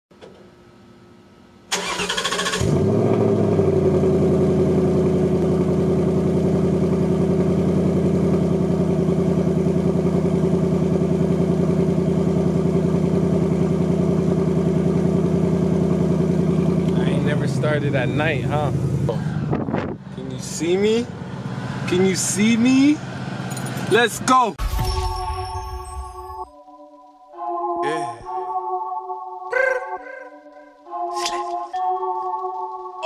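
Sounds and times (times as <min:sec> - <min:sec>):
car engine starting and idling: 0:01.7 - 0:25.2.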